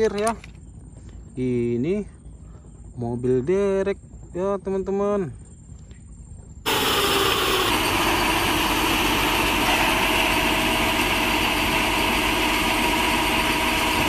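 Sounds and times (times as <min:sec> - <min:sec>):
truck engine droning: 0:06.7 - 0:14.0.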